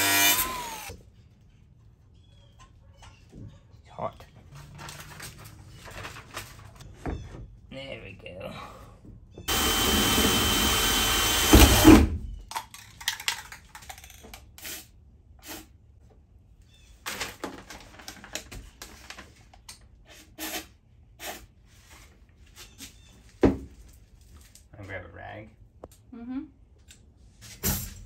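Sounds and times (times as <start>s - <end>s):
drill boring through sheet metal: 0.0s - 0.9s, 9.5s - 12.1s.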